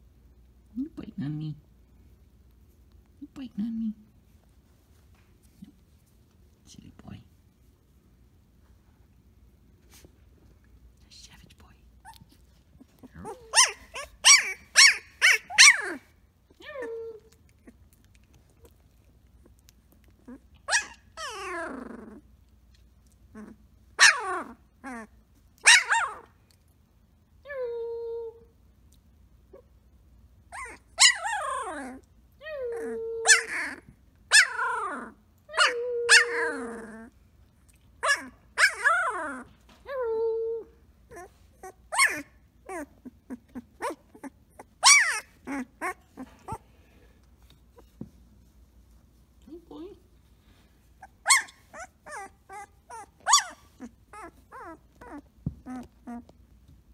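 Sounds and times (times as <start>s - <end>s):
puppy yipping and howling: 13.2s - 17.3s, 20.3s - 21.9s, 23.4s - 26.3s, 30.5s - 37.0s, 38.0s - 46.6s, 51.0s - 56.3s.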